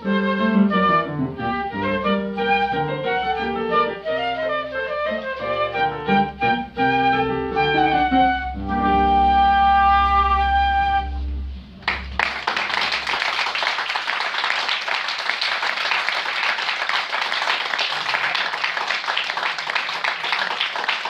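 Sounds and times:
flute and piano note: 0:00.0 - 0:12.2
audience applauding: 0:11.8 - 0:21.0.

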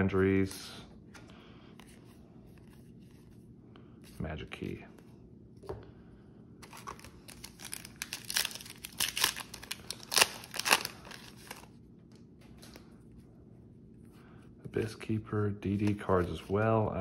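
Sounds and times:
foil wrapper tearing and crinkling: 0:06.6 - 0:11.7.

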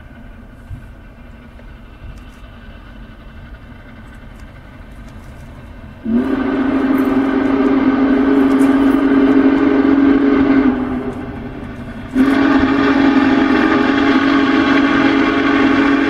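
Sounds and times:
steam whistle blasts: 0:06.0 - 0:11.5, 0:12.1 - 0:16.0.

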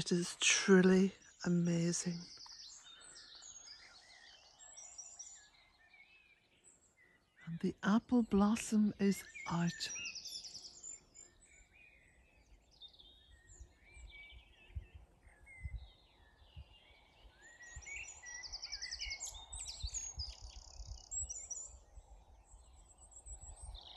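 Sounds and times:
songbirds singing: 0:00.0 - 0:23.9.

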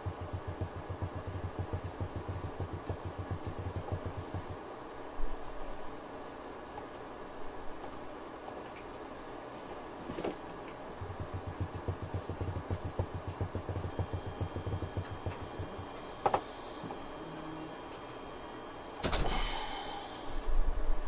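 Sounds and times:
camera motors pulsing: 0:00.0 - 0:04.6, 0:11.0 - 0:19.1.

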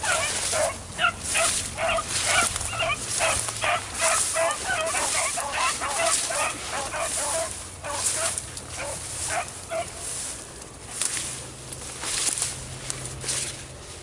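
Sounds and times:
dogs baying and yipping: 0:00.0 - 0:10.1.

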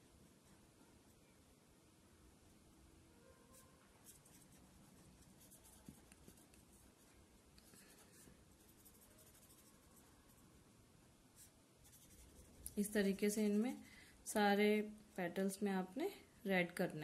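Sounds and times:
pen scratching on paper: 0:04.0 - 0:07.1, 0:07.7 - 0:10.1, 0:11.4 - 0:13.1.

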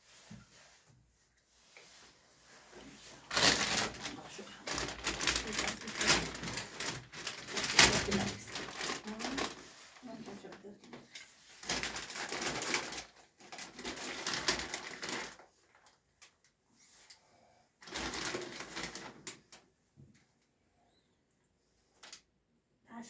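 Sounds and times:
plastic packaging crinkling: 0:03.2 - 0:16.0, 0:17.8 - 0:19.6.

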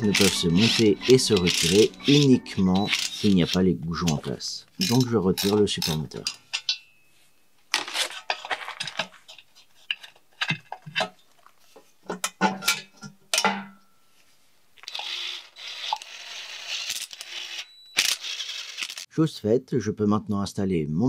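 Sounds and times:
metallic ring: 0:00.0 - 0:04.2, 0:04.8 - 0:07.4, 0:12.5 - 0:14.1
rustling scrape with clicks: 0:00.0 - 0:06.4, 0:07.7 - 0:10.2
wrench clinking on metal: 0:00.0 - 0:07.1.

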